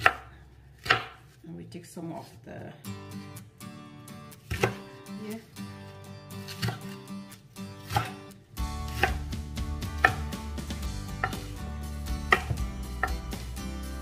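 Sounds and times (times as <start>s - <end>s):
knife chopping on wooden board: 0.0s - 1.3s, 4.5s - 4.8s, 6.5s - 7.0s, 7.8s - 8.2s, 8.9s - 10.4s, 11.1s - 11.6s, 12.2s - 13.4s.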